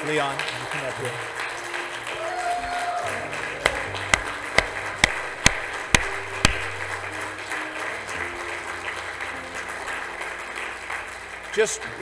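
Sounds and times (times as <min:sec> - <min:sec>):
light scattered applause: 0:00.0 - 0:12.0
person clapping slowly: 0:01.6 - 0:11.6
soft keyboard chords: 0:03.2 - 0:10.6.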